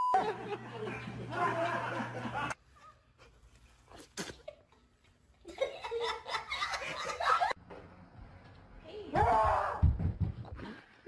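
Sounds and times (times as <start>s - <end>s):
loud laughter: 0.2s - 2.6s, 5.5s - 7.6s.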